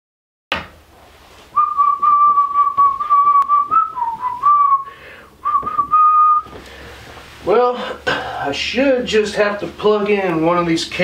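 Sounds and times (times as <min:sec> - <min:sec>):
man whistling: 0:01.6 - 0:06.6.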